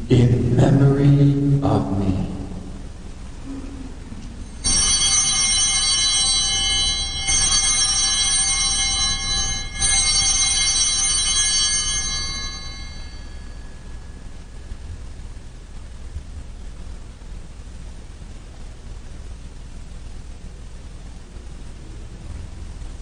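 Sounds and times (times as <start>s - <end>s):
altar bells ringing: 4.4s - 14.6s.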